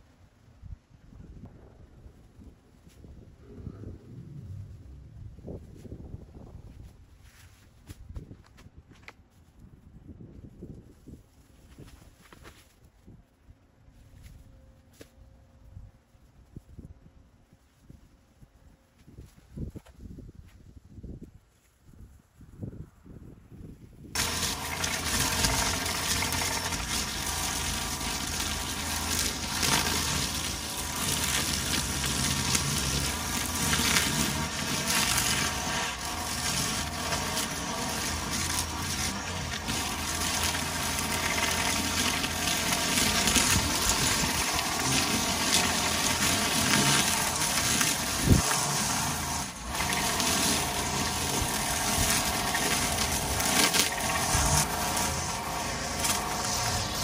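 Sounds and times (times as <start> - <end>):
string trimmer cutting grass: 24.1 - 57.0.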